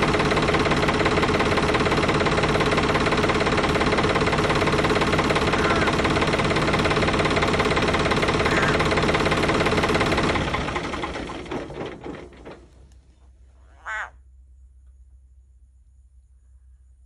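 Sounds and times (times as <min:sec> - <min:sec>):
frog distress calls: 0:05.5 - 0:06.1, 0:08.4 - 0:09.0, 0:13.5 - 0:14.2.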